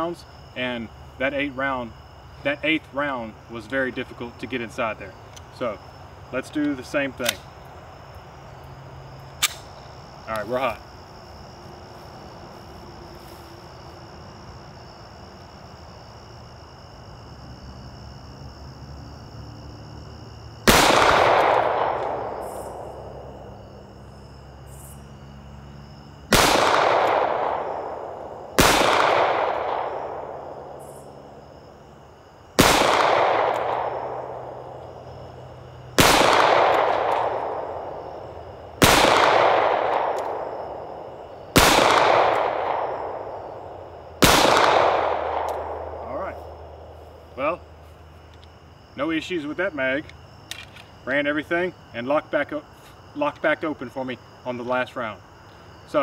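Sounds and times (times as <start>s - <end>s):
pistol shots echoing: 20.7s - 22.6s, 26.3s - 30.7s, 32.6s - 34.7s, 36.0s - 38.0s, 38.8s - 40.6s, 41.5s - 43.4s, 44.2s - 46.0s.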